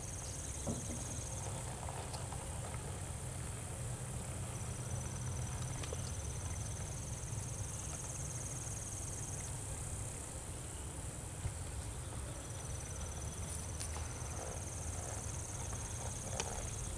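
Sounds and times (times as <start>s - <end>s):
high insect trill: 0.0s - 16.9s.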